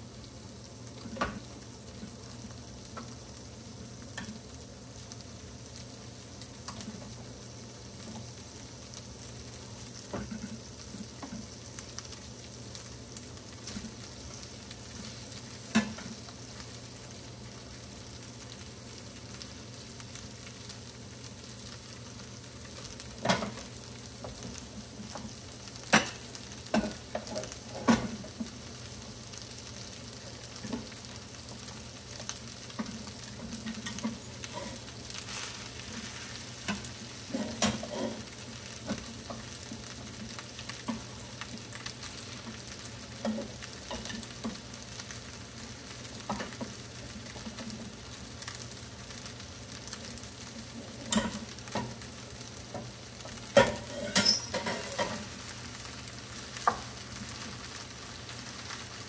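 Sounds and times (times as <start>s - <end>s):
rice and vegetables sizzling: 0.0s - 59.0s
spoon and spatula scraping pans: 32.8s - 39.4s, 51.0s - 52.0s, 53.6s - 55.3s.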